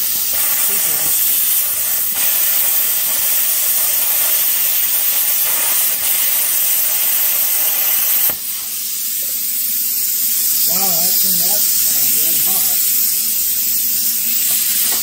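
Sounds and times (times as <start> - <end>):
plasma cutter click: 0.0 - 8.8, 14.2 - 15.0
plasma cutter hissing: 0.0 - 15.0.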